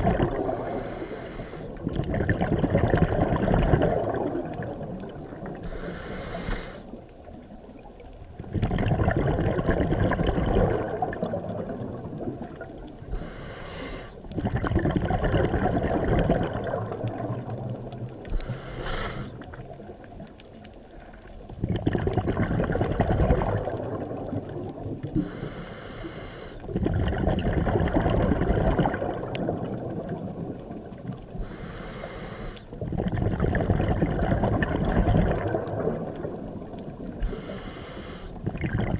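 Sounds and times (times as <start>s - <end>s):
exhaled bubbles rushing: 0.0s - 5.7s, 8.3s - 13.2s, 14.2s - 20.4s, 21.4s - 25.4s, 26.6s - 31.4s, 32.7s - 37.5s, 38.4s - 38.9s
diver inhaling through regulator: 0.3s - 1.8s, 5.6s - 7.0s, 13.1s - 14.3s, 18.3s - 19.5s, 25.2s - 26.7s, 31.4s - 32.8s, 37.2s - 38.5s.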